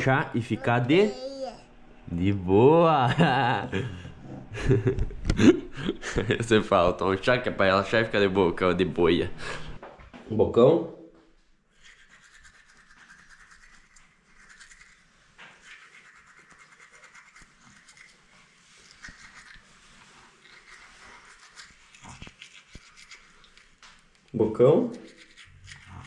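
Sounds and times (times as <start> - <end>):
toothbrush scrubbing teeth: 11.7 - 26.0.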